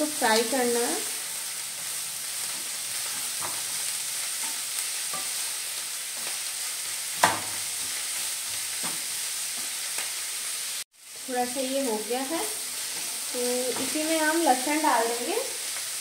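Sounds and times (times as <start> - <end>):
cabbage sizzling in a pan: 0.0 - 16.0
spatula scraping a pan: 1.1 - 6.4, 12.6 - 14.1.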